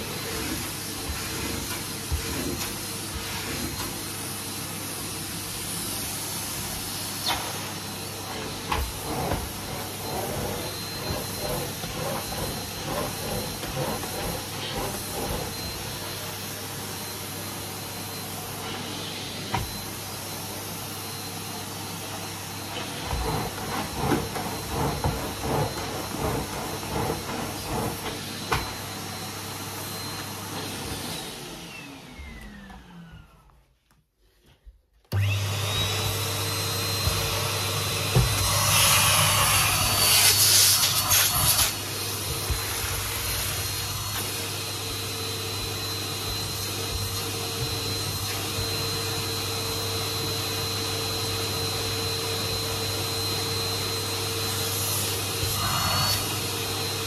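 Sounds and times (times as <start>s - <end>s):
vacuum cleaner running: 0.0s - 57.0s
vacuum floor tool knocks: 19.5s - 19.8s, 38.0s - 38.6s
vacuum motor winding down: 35.1s - 57.0s.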